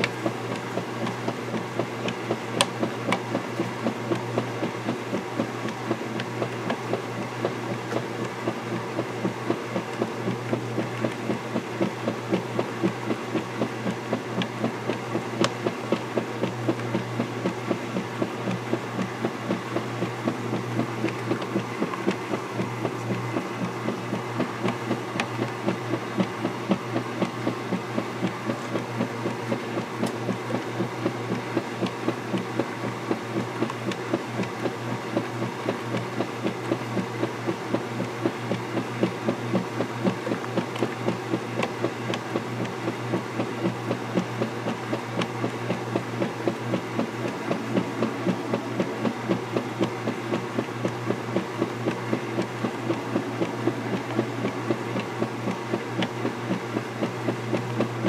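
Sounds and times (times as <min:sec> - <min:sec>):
washing machine motor hum: 0:00.0 - 0:58.0
water sloshing in washer: 0:00.0 - 0:58.0.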